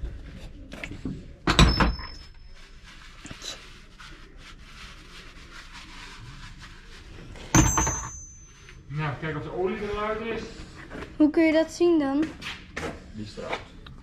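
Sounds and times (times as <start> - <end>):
rustling and handling of tools: 0.0 - 4.3, 7.0 - 8.9.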